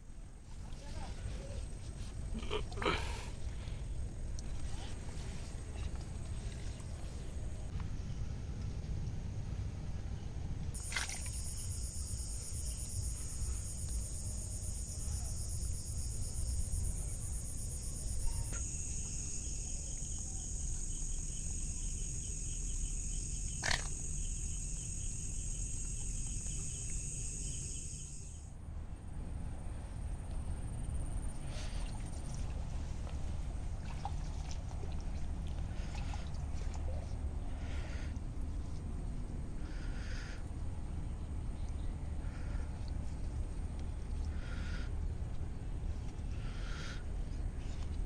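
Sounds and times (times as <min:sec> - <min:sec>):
insects trilling: 0:10.8 - 0:28.5
lower insect trill: 0:10.8 - 0:28.5.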